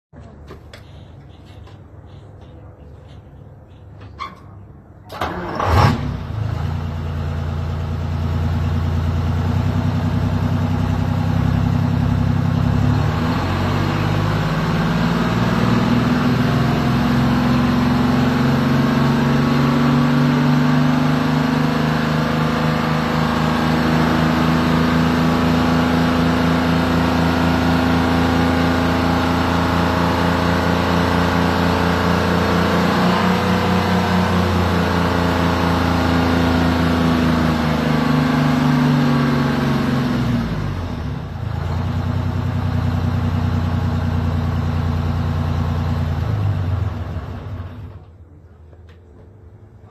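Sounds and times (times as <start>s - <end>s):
diesel truck engine idling: 5.2s - 19.1s, 39.7s - 48.0s.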